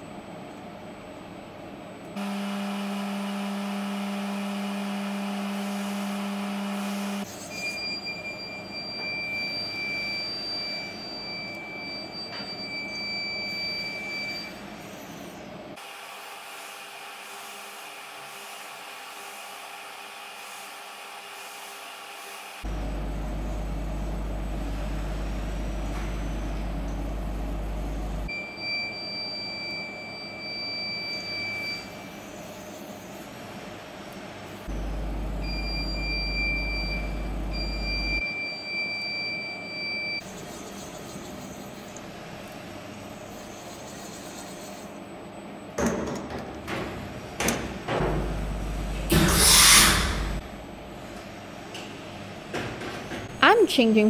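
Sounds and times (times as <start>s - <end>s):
machine low hum: 0.0s - 15.6s, 22.6s - 45.8s, 46.4s - 52.5s
edge finder beeping: 35.4s - 40.2s
pneumatic air hissing: 49.1s - 50.4s.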